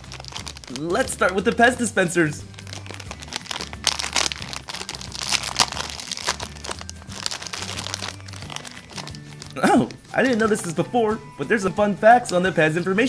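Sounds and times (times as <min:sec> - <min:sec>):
plastic packaging crinkling: 0:00.0 - 0:01.8, 0:02.5 - 0:10.6.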